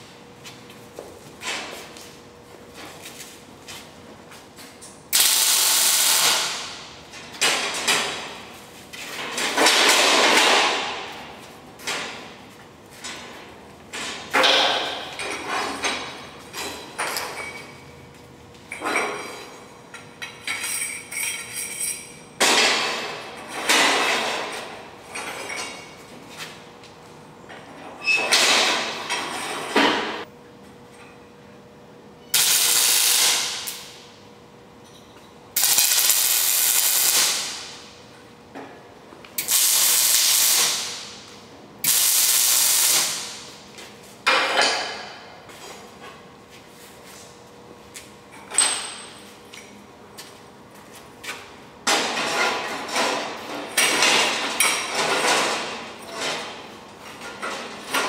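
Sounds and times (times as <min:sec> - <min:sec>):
welding crackle: 0:05.1 - 0:06.7, 0:32.4 - 0:34.0, 0:35.6 - 0:37.8, 0:39.4 - 0:41.2, 0:41.8 - 0:43.5.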